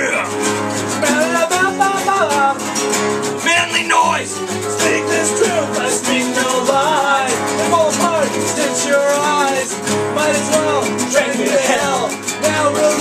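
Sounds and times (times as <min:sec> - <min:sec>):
acoustic guitars strumming: 0:00.0 - 0:13.0
person singing: 0:00.9 - 0:02.7, 0:03.4 - 0:13.0.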